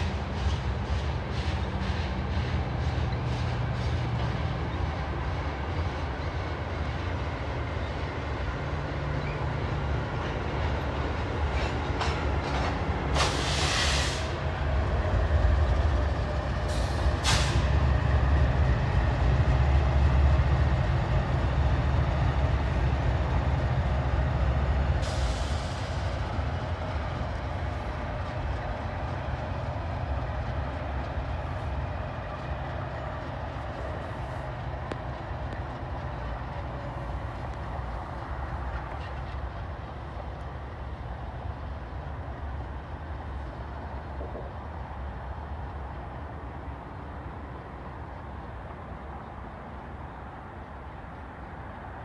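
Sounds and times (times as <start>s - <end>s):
freight train rumbling: 0.0s - 52.0s.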